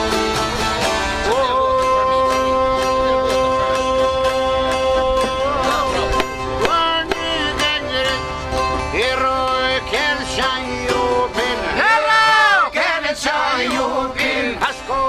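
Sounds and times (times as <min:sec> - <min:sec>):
accordion: 0:00.0 - 0:15.0
ornamented string melody: 0:00.0 - 0:15.0.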